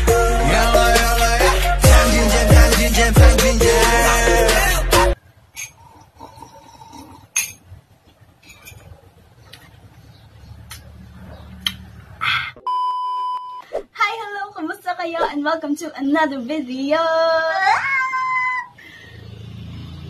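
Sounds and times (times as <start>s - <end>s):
high test-tone beep: 12.7s - 13.6s.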